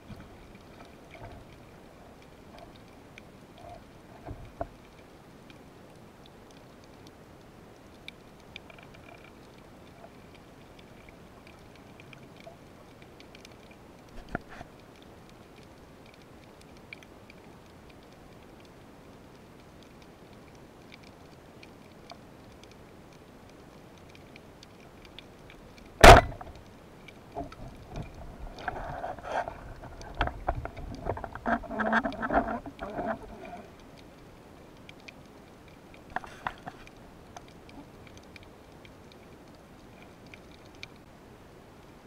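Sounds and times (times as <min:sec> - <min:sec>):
faint crackle of ticks: 0:00.0 - 0:42.0
speargun firing crack: 0:26.0 - 0:26.4
knocks and rattles of struggling fish: 0:26.0 - 0:26.6, 0:27.3 - 0:33.8, 0:36.0 - 0:37.8.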